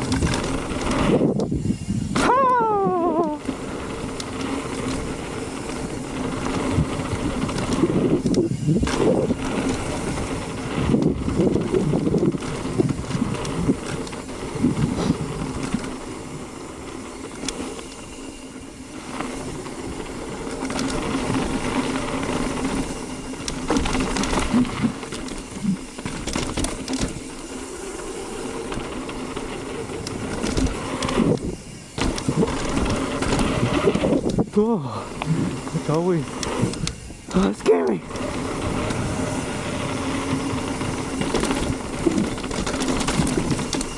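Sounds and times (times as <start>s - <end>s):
bike knocking and rattling: 0.0s - 43.9s
bike tyres rushing on dirt: 0.0s - 43.9s.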